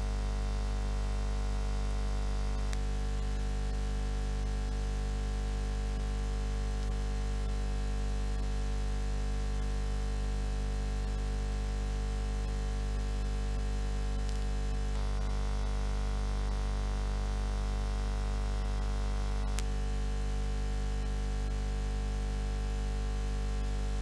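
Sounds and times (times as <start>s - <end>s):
faint click: 14.2s - 14.5s, 19.5s - 19.7s.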